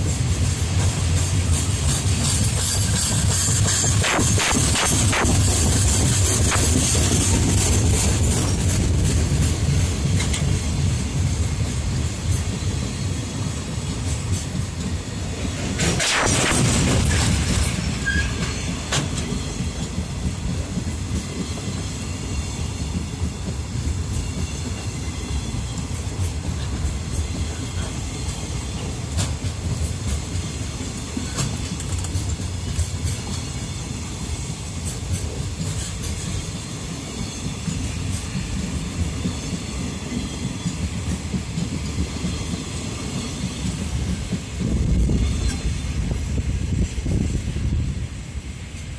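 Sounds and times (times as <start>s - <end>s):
train wheels rumbling on rail: 0.0s - 48.9s
wheels clicking over rail joints: 25.8s - 33.5s.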